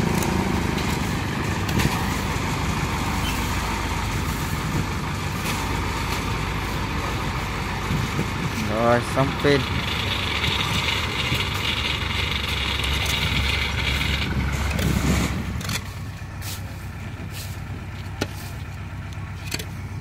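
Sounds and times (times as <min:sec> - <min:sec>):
diesel engine running: 0:00.0 - 0:20.0.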